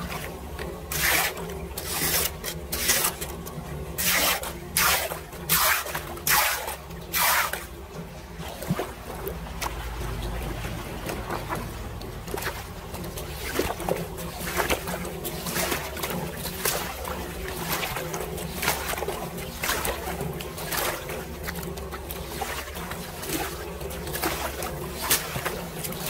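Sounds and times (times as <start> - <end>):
rake splashing and scraping: 0.0 - 26.0
water flowing into storm drain: 0.0 - 26.0.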